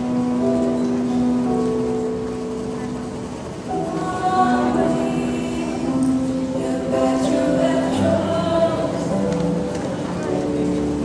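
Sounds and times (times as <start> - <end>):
mixed choir singing: 3.7 - 9.3.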